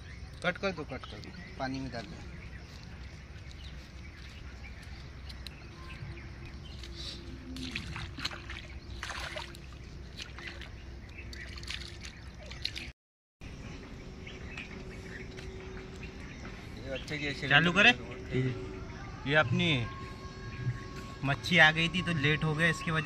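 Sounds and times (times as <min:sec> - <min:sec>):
low outdoor rumble: 0:01.0 - 0:23.0
water sloshing and splashing: 0:05.8 - 0:12.9, 0:14.9 - 0:16.7.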